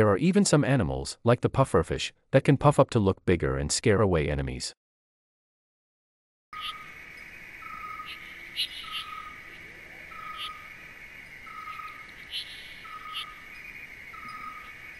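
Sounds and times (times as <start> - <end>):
bird chirps: 6.6 - 14.9
high insect chirring: 6.6 - 14.9.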